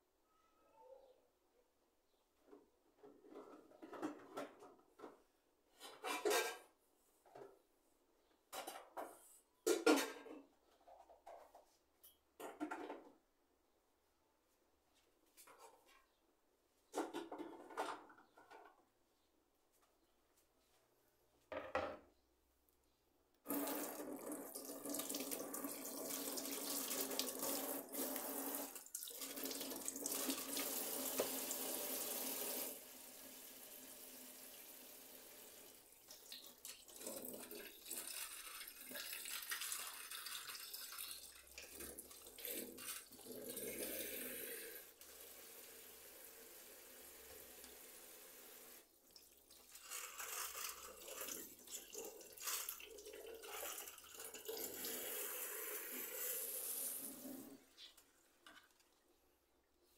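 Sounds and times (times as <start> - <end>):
clatter in sink: 3.1 - 5.2, 5.8 - 6.8, 8.5 - 11.6, 12.4 - 13.2
tap water pouring: 23.4 - 57.6.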